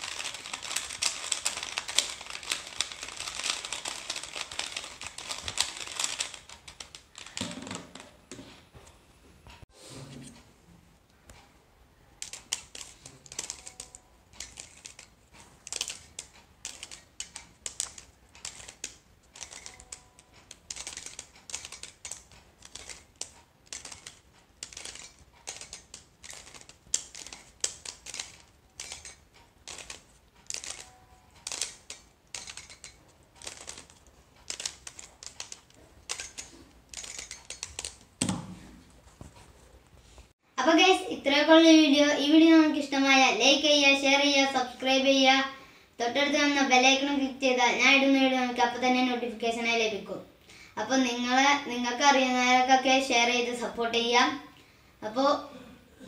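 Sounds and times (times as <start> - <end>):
puzzle cube clicking: 0.0 - 8.0, 12.2 - 38.4.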